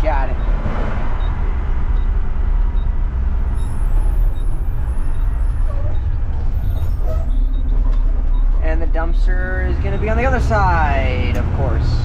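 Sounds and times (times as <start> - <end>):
truck engine rumbling: 0.0 - 12.0.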